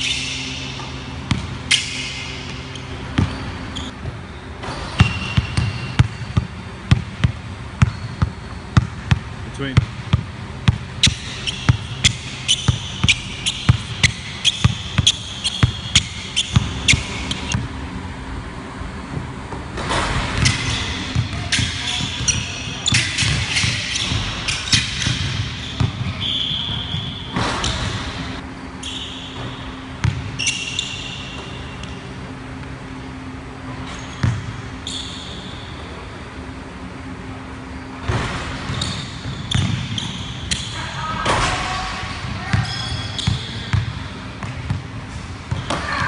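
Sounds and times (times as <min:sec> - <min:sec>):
sneaker squeaks: 0:00.0 - 0:09.2, 0:10.6 - 0:17.7, 0:19.8 - 0:32.3, 0:33.6 - 0:36.0, 0:37.8 - 0:46.0
basketball bouncing on hardwood floor: 0:05.0 - 0:09.2.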